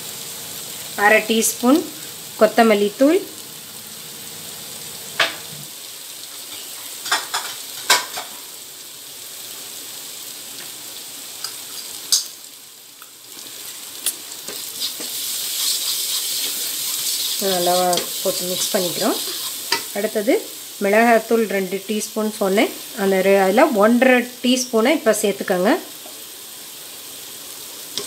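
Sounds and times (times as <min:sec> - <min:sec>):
masala sizzling in a pan: 0:00.0 - 0:28.0
spatula scraping pan: 0:14.5 - 0:19.9.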